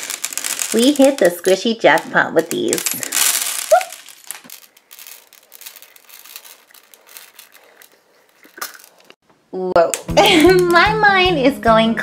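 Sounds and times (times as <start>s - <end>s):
beads clattering onto tabletop: 0.0s - 9.2s.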